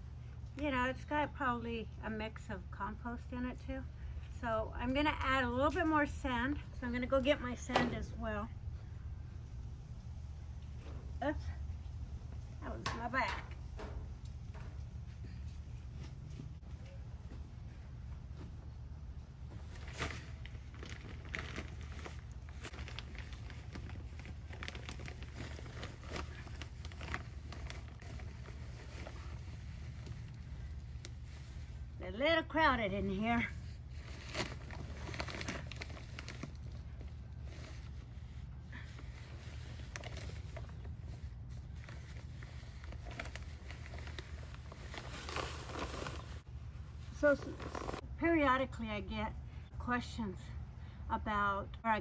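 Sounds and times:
low background rumble: 0.0 - 52.0
plastic bag crinkling: 19.7 - 31.8, 33.7 - 38.0, 38.8 - 46.4.

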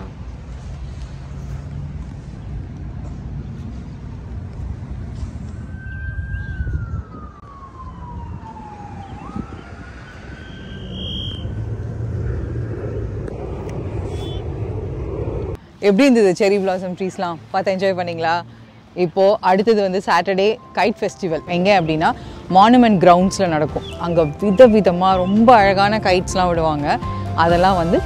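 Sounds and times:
emergency siren wailing: 5.4 - 15.5, 19.8 - 28.0.

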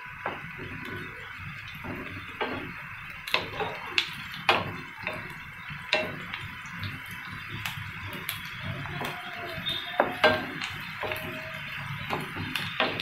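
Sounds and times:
onions sizzling in hot oil: 0.0 - 13.0
wooden spatula knocking pan: 0.2 - 1.2, 1.8 - 6.3, 10.0 - 13.0.

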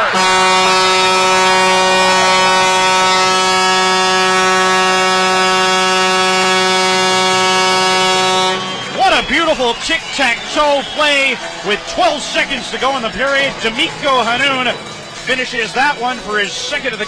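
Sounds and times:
goal horn blast: 0.0 - 9.2.

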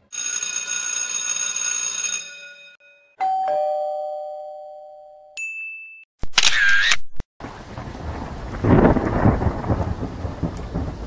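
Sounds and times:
old telephone bell ringing: 0.1 - 5.6
doorbell ding-dong: 2.3 - 6.0.

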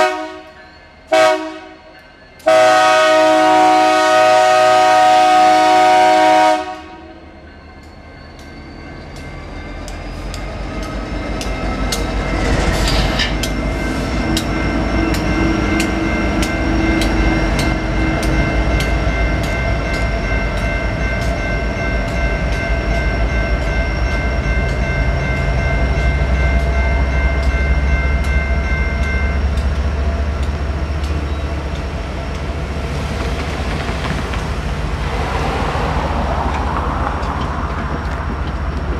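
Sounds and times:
locomotive air horn chord: 0.0 - 7.2
electronic crossing bell ringing: 7.1 - 29.9.

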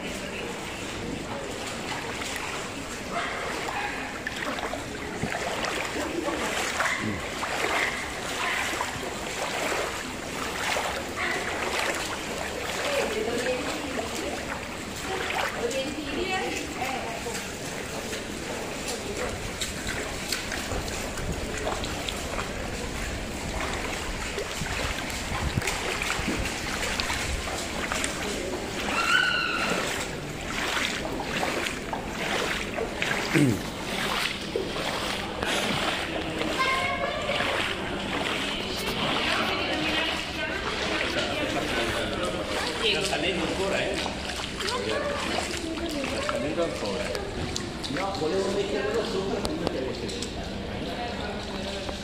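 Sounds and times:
footsteps splashing through water: 0.0 - 52.0
wind on microphone: 23.2 - 27.5.

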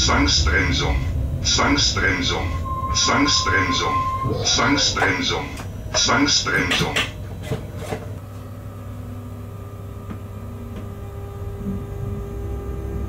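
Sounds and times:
faint whining tones: 2.0 - 5.9.

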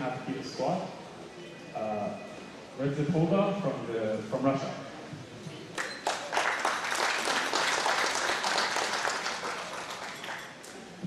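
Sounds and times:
audience applauding: 5.8 - 10.9.

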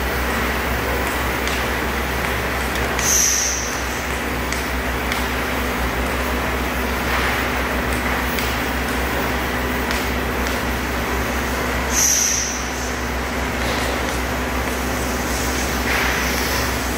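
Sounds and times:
hydraulic motor and pump humming: 0.0 - 16.9.

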